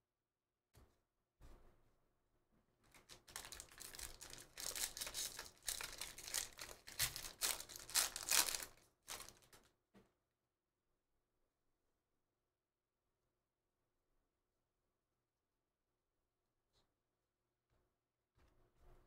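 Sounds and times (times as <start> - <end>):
foil wrapper tearing and crinkling: 3.0 - 9.6.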